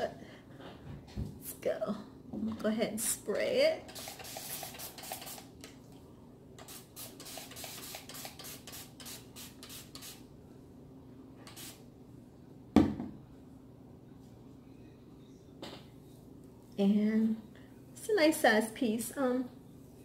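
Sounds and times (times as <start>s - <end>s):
spray bottle spritzing: 3.9s - 5.6s, 6.6s - 10.2s, 11.5s - 11.8s.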